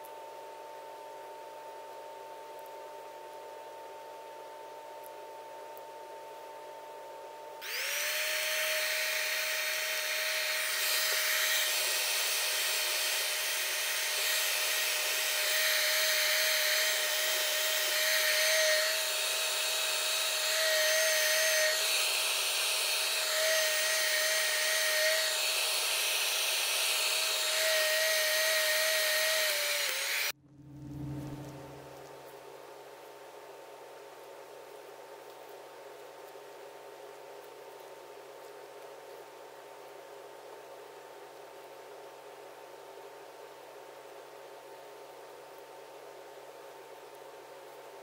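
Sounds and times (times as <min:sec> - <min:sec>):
heat gun fan whine: 0:04.2 - 0:32.2.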